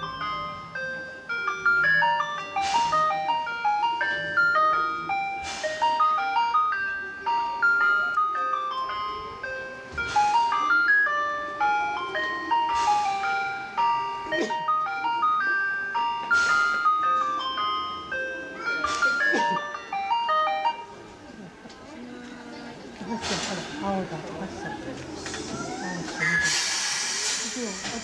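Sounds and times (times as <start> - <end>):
chime-like melody: 0.0 - 22.3.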